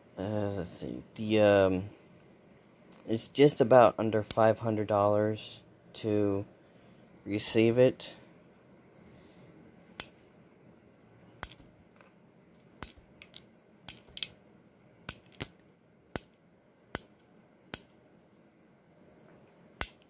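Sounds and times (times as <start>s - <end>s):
cartridges dropping: 11.4s - 12.1s, 12.8s - 14.4s, 15.1s - 16.3s.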